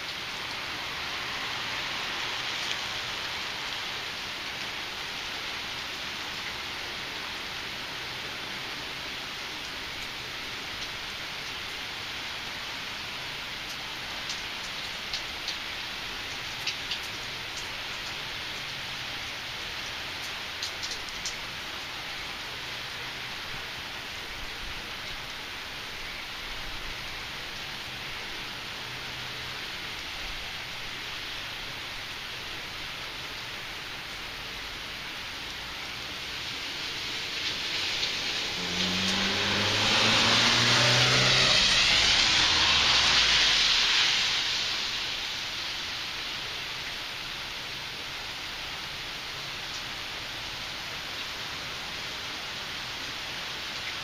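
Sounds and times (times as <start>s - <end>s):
car tyres hissing on wet road: 0.0s - 54.0s
heavy rain falling: 0.0s - 54.0s
car engine passing: 36.4s - 46.0s.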